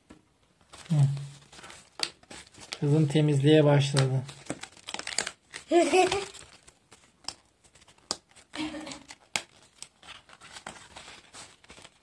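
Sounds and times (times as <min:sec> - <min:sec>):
paper rustling: 0:00.6 - 0:12.0
cardboard tabs snapping: 0:04.5 - 0:05.4.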